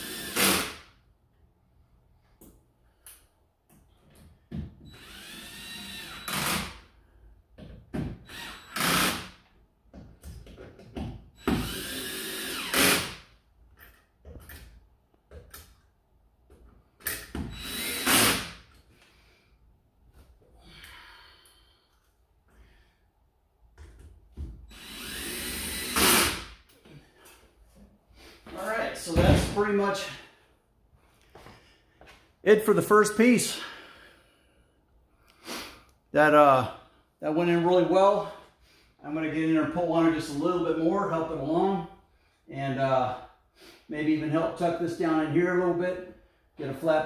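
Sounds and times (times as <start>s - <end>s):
power drill whining: 0.0s - 0.7s, 4.8s - 6.7s, 8.2s - 9.2s, 11.4s - 13.2s, 17.5s - 18.5s, 24.7s - 26.5s.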